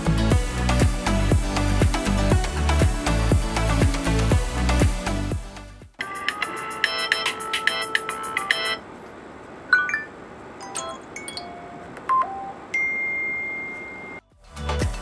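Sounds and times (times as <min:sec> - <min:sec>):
fast-repeating electronic ringtone: 0:06.1 - 0:08.8.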